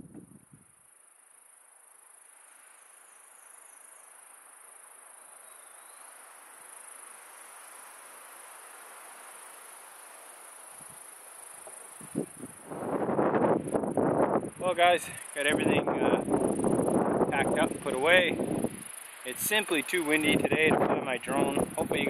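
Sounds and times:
insects trilling: 0.0 - 22.0
wind rushing through trees: 6.4 - 22.0.

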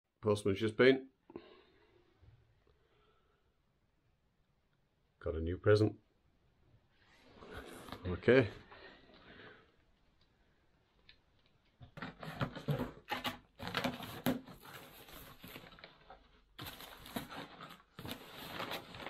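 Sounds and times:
cardboard flaps opening: 11.9 - 19.0
tape tearing off cardboard: 12.0 - 15.6
paper packing rustling: 12.0 - 19.0.

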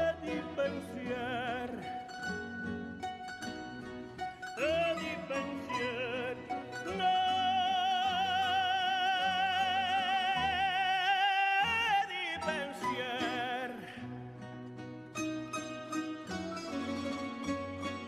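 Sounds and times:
man singing operatically: 0.0 - 2.4, 4.4 - 14.3
plucked string ensemble: 0.0 - 18.0.

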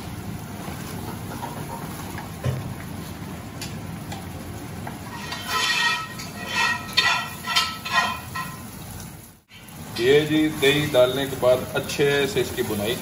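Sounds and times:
gravy sizzling: 0.0 - 13.0
metal spatula scraping a pan: 5.1 - 8.7.

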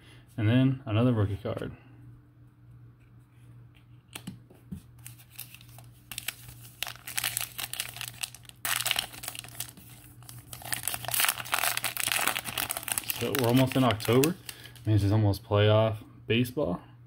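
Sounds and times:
plastic wrapper crinkling: 5.0 - 14.9.

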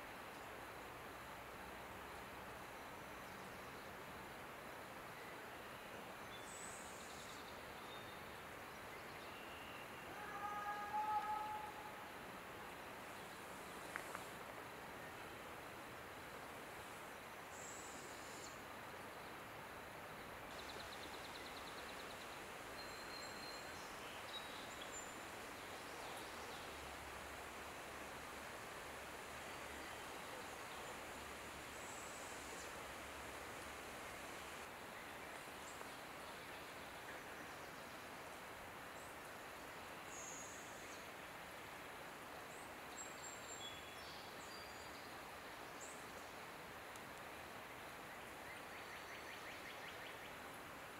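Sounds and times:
soft woodland hiss: 0.0 - 50.9
faint high-pitched calls: 9.3 - 12.1.

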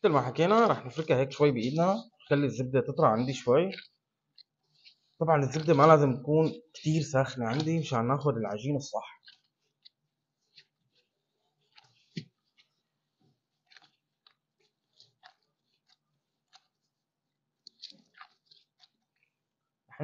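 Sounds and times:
butter squishing in bowl: 0.1 - 19.9.

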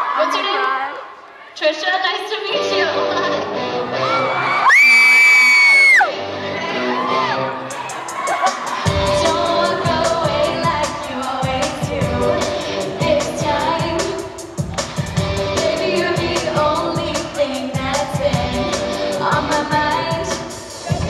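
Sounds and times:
pop-rock band playing: 2.6 - 21.0
woman singing into microphone: 9.1 - 14.2, 15.6 - 20.4.

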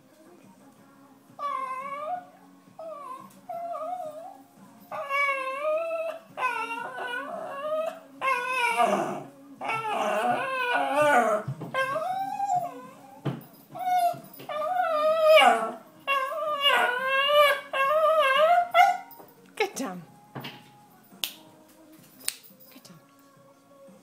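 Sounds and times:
dog whimpering and whining: 1.4 - 19.2.

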